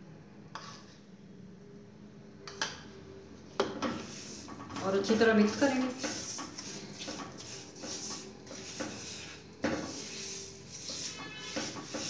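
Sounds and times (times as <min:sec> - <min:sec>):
spatula scraping a wok: 0:00.6 - 0:01.0, 0:03.8 - 0:12.0.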